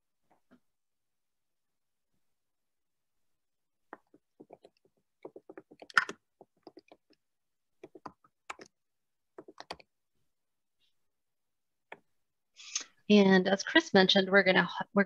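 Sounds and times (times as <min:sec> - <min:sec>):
keyboard typing: 0:03.9 - 0:07.2, 0:07.8 - 0:08.8, 0:09.4 - 0:09.9.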